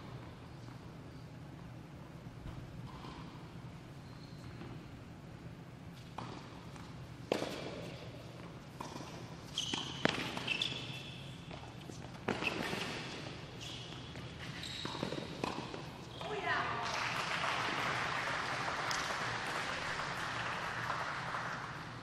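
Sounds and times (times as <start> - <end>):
shoe squeaks on court: 4.0 - 4.8, 9.4 - 16.2
tennis ball hit by racquets: 7.3 - 8.0, 8.7 - 10.5, 14.8 - 15.9.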